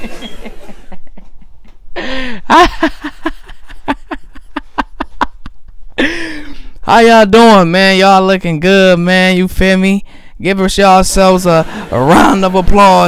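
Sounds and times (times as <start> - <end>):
man laughing into microphone: 0.0 - 6.6.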